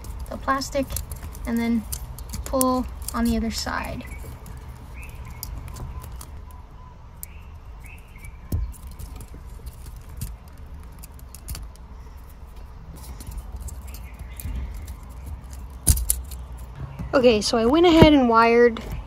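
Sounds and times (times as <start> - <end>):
pick clicking in wiring connector: 8.5 - 11.9.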